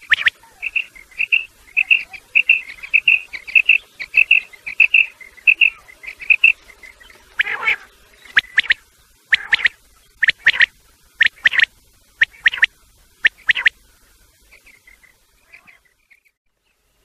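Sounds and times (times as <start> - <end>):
harsh raspy bird calls: 0.0 - 12.7
quail calling: 0.0 - 13.7.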